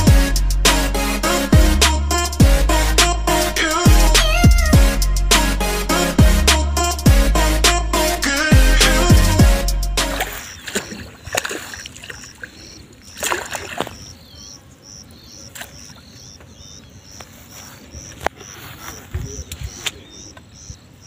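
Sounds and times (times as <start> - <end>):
insect chirping: 10.1 - 21.0
fish splashing in a net: 10.2 - 14.1.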